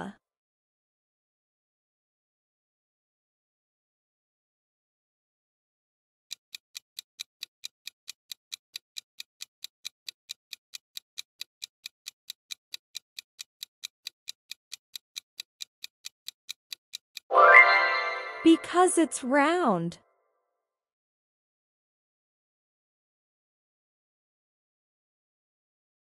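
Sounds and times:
clock ticking fast: 0:06.3 - 0:17.3.

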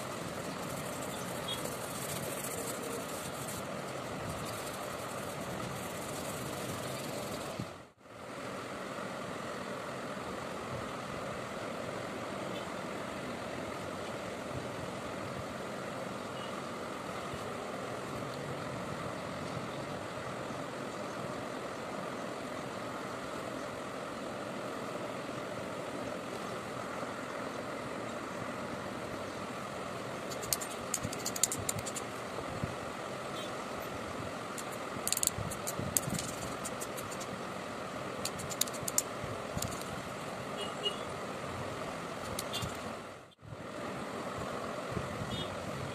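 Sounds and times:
steady mechanical hum: 0:00.0 - 0:45.9
sharp rattling clicks: 0:30.3 - 0:32.0, 0:34.6 - 0:37.3, 0:38.2 - 0:39.9.

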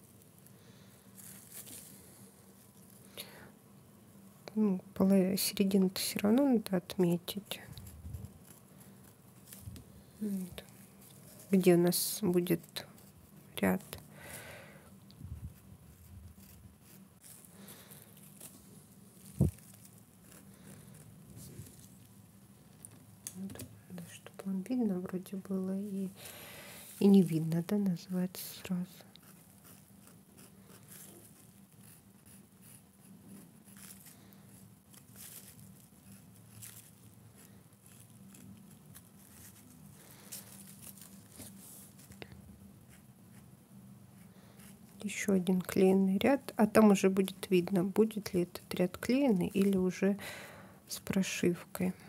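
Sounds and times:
low steady hum: 0:00.0 - 0:52.0
faint rustling and scratchy ticks: 0:44.6 - 0:50.0.

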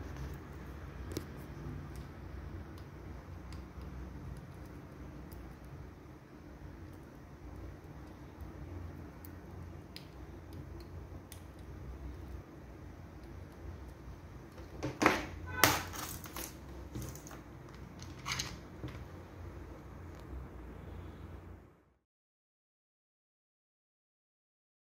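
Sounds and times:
low steady hum: 0:00.0 - 0:22.0
rustling and scraping handling noise: 0:14.6 - 0:19.1.

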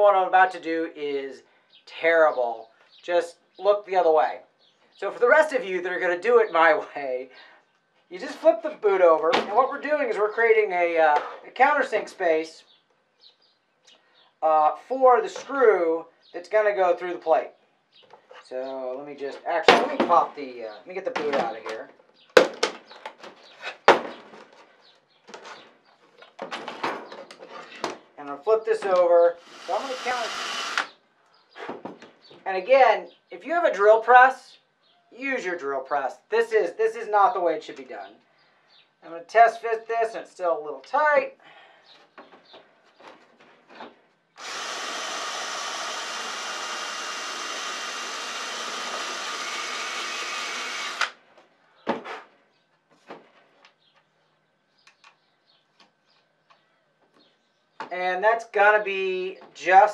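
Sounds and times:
cordless drill running: 0:29.4 - 0:30.9, 0:44.4 - 0:51.2.

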